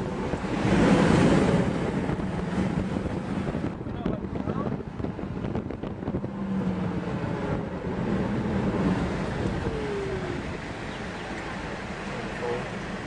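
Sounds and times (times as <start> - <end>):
vehicle engine hum: 0.0 - 13.0
wind rushing across microphone: 0.0 - 13.0
road noise hiss: 4.6 - 13.0.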